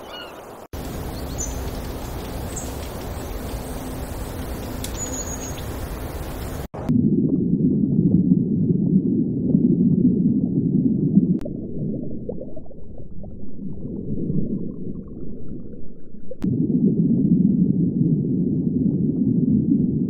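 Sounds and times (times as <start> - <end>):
underwater rumbling wash: 0.7 - 20.0
faint click: 4.8 - 5.1.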